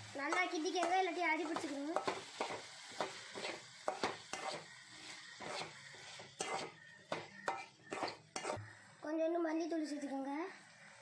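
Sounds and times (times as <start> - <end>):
metal spatula scraping a pan: 0.2 - 8.7.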